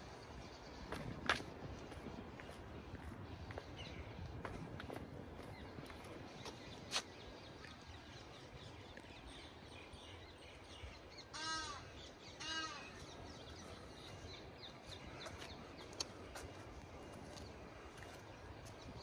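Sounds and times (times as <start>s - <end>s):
outdoor background noise: 0.0s - 19.0s
small birds chirping: 0.0s - 19.0s
bird calling: 11.2s - 13.6s.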